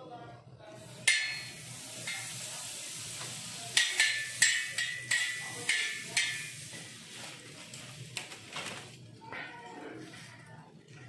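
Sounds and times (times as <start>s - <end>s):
metal spoon clinking on iron griddle: 0.9s - 2.6s, 3.6s - 7.0s.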